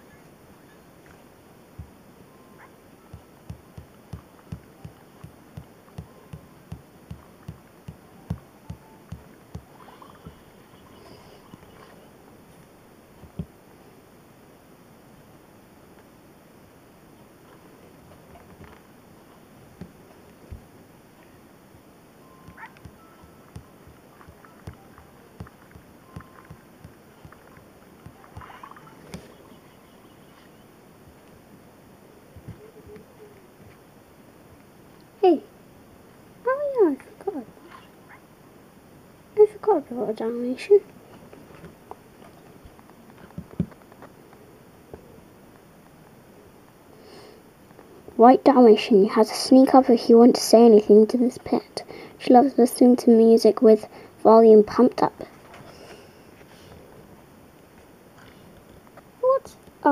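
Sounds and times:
game beat of low thumps: 1.8s - 2.0s, 3.1s - 10.4s, 13.2s - 13.5s, 22.4s - 28.6s
fingertip taps on touchscreen: 3.2s - 9.7s, 13.2s - 13.5s
chirping sound effect: 28.4s - 30.8s.

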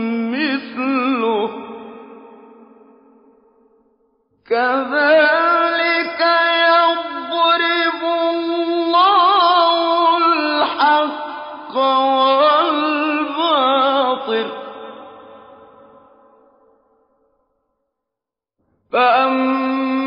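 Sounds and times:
man chanting melodically: 4.5s - 15.5s, 19.0s - 20.0s.

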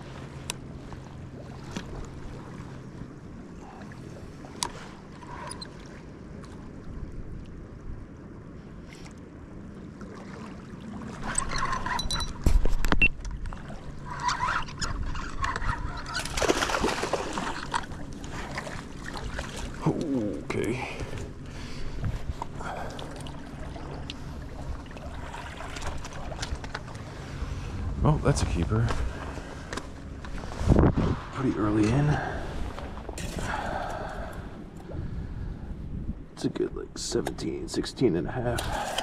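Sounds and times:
water: 0.0s - 39.0s
wind: 0.0s - 39.0s
water splashing: 10.0s - 34.5s
reel cranking: 11.2s - 12.4s.

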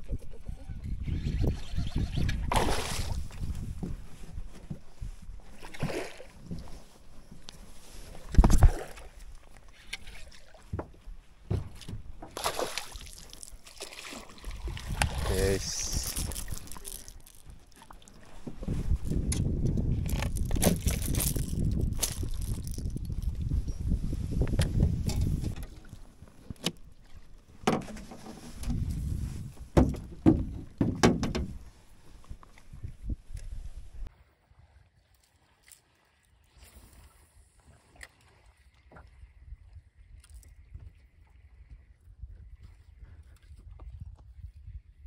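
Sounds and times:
knocks and thumps in a boat: 3.3s - 7.4s, 10.0s - 12.6s, 17.4s - 23.8s, 24.4s - 32.9s
fish splashing in water: 12.4s - 15.2s.

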